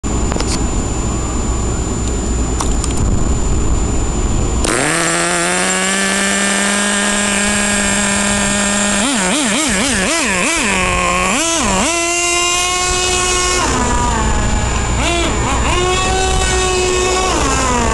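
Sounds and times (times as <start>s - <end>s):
low rumbling noise: 0.0s - 17.9s
model engine buzzing and revving: 4.6s - 17.9s.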